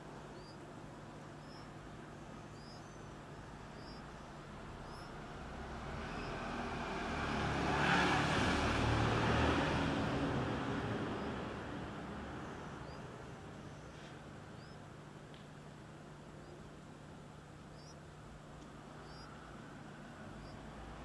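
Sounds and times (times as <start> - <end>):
bird chick chirping: 0.4 - 0.6, 1.3 - 5.2, 6.0 - 6.6, 9.7 - 11.5, 12.2 - 14.8, 17.6 - 18.1, 18.9 - 19.4, 20.3 - 20.6
vehicle passing by: 3.7 - 13.8, 18.9 - 21.0.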